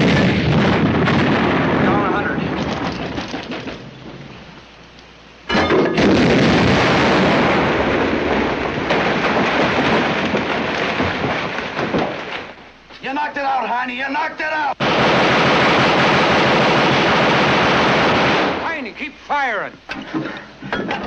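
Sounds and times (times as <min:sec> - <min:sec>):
large explosion with rumble: 0:00.0 - 0:04.2, 0:05.6 - 0:12.6, 0:14.8 - 0:18.6.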